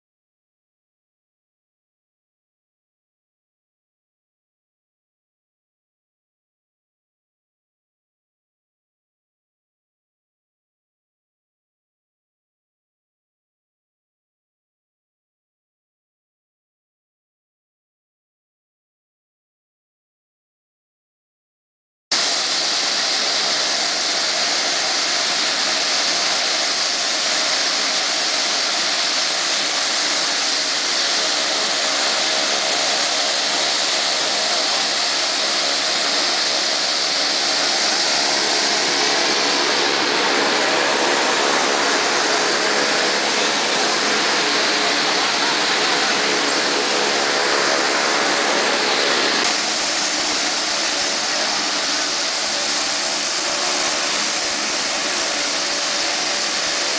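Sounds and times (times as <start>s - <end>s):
turboprop engines running: 22.2s - 56.9s.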